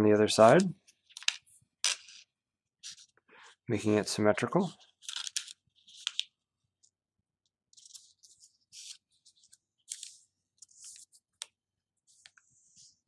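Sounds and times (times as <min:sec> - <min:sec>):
paper rustling: 0:04.6 - 0:06.3, 0:07.7 - 0:11.5.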